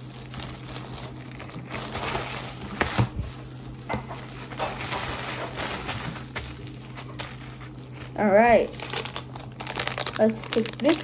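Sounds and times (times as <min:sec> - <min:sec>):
plastic bags crinkling: 0:00.0 - 0:11.0
sharp crackles: 0:04.2 - 0:11.0.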